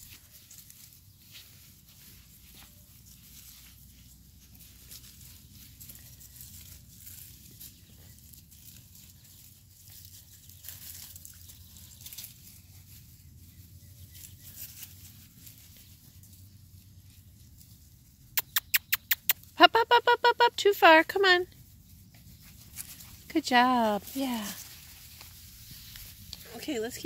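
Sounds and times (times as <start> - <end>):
puppies rustling through grass: 0.0 - 19.6, 20.7 - 27.0.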